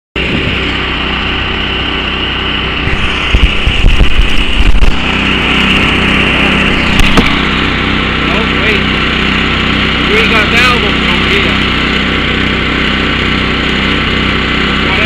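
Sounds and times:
air compressor running: 0.2 - 15.0
low rumbling bumps: 2.8 - 9.6.

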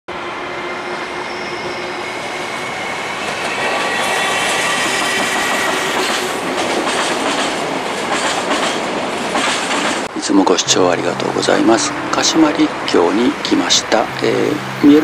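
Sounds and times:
electric train whine and rumble: 0.1 - 15.0
wheels clacking over rail joints: 4.8 - 10.1.

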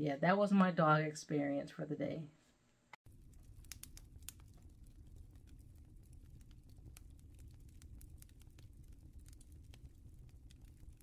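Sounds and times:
soft clicks and crackles: 3.0 - 11.0
faint low rumble: 3.1 - 11.0.

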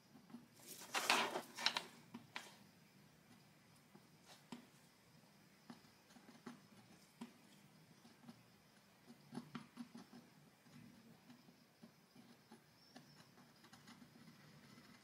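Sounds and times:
rustling scrape: 0.6 - 1.9.

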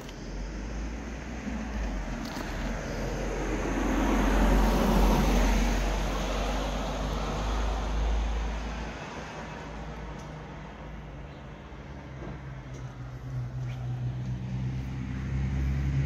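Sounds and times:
car passing: 0.0 - 10.1, 11.7 - 16.0.

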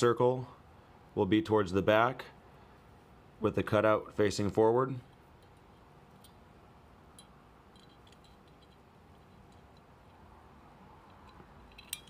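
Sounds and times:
small steel parts clicking: 7.1 - 10.3, 11.0 - 12.0.

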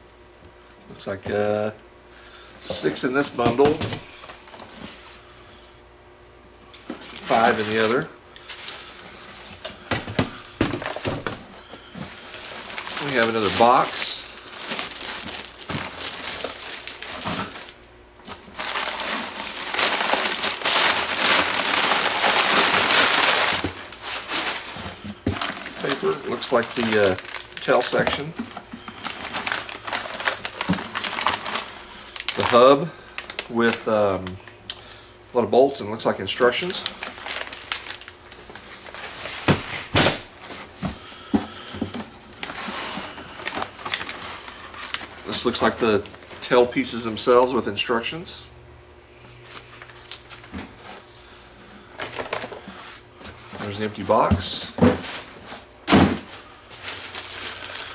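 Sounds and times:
plastic and paper crinkling: 6.8 - 34.3, 36.3 - 46.8, 52.0 - 57.9.

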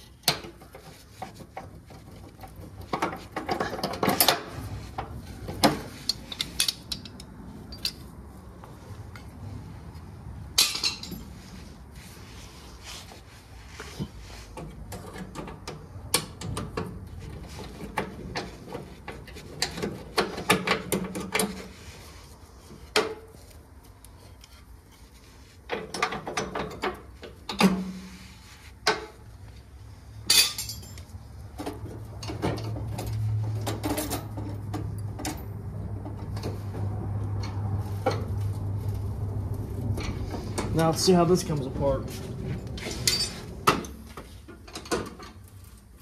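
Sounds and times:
pliers clinking on metal rods: 6.0 - 8.1, 30.3 - 31.1.

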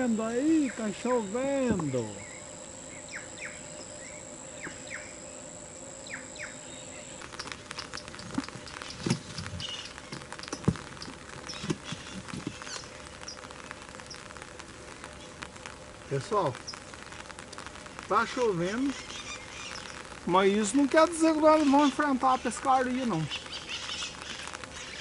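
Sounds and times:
high-pitched insect call: 0.0 - 25.0
raindrops pattering: 0.0 - 25.0
bird chirps: 6.0 - 13.4, 18.7 - 20.1, 23.2 - 25.0.

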